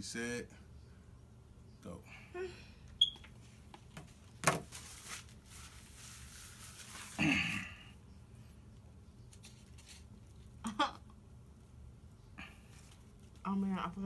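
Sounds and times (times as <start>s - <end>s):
rustling: 3.4s - 7.6s, 9.2s - 10.6s.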